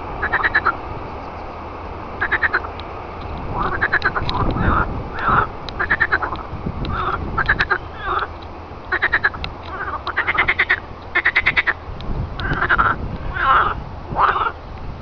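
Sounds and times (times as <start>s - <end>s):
frogs croaking: 0.2s - 14.6s.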